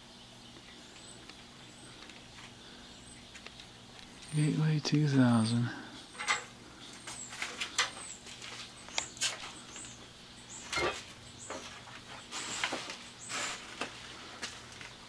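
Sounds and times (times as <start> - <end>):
faint steady hum: 0.0 - 15.0
rustling: 10.6 - 15.0.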